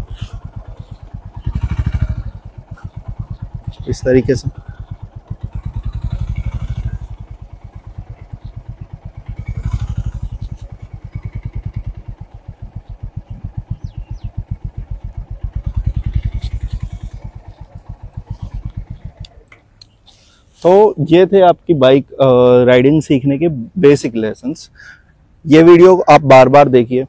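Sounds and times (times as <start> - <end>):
motorcycle engine running: 0.0 - 20.9.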